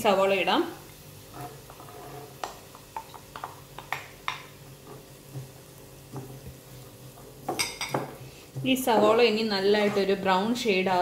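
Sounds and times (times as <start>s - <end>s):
wooden spatula knocking a pan: 2.4s - 10.2s.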